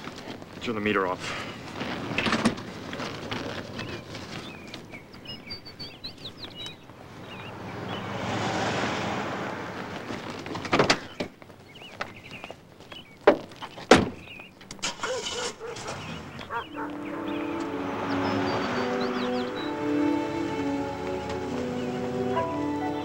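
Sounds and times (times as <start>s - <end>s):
small birds chirping: 3.3s - 8.3s, 9.8s - 23.0s
car passing: 6.8s - 10.8s, 14.8s - 23.0s.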